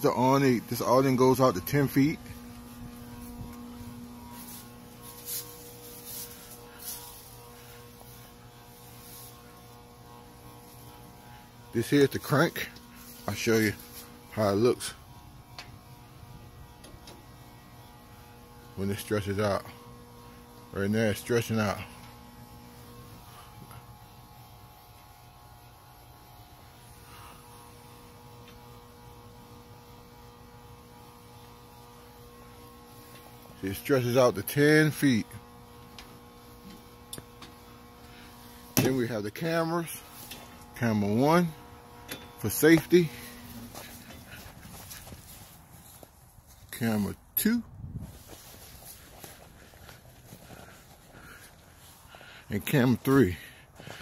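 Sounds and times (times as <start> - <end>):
low electrical hum: 0.0 - 54.0.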